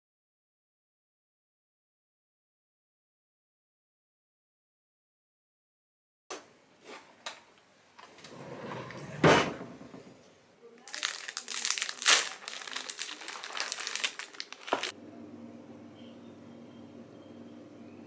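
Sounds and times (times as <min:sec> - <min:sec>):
wrapper crinkling: 0:10.8 - 0:15.0.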